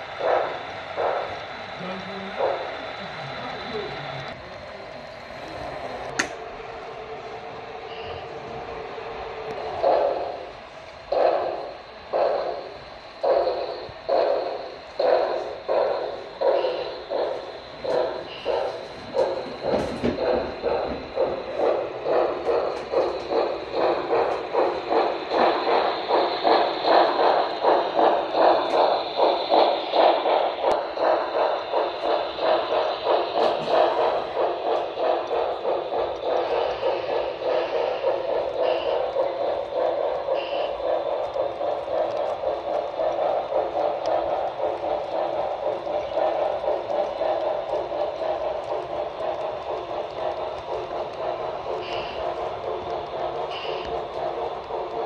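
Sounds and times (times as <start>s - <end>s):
model freight cars rolling: 0.0s - 55.0s
model steam locomotive chuffing: 0.0s - 55.0s.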